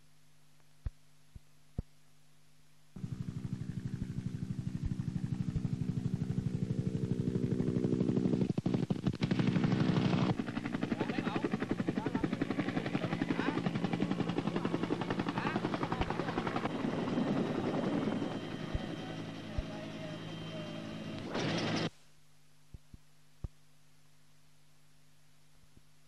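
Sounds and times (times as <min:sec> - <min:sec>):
helicopter engine hum: 0:03.0 - 0:21.9
helicopter rotor beating: 0:03.0 - 0:21.9.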